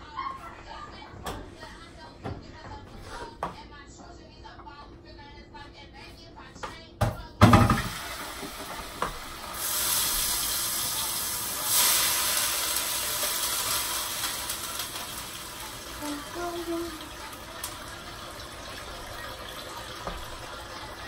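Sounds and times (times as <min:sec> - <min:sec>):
kitchen tap running: 0:07.4 - 0:21.0.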